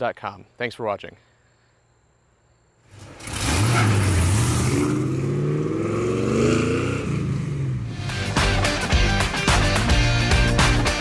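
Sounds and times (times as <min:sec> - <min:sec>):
car engine accelerating: 0:02.9 - 0:08.4.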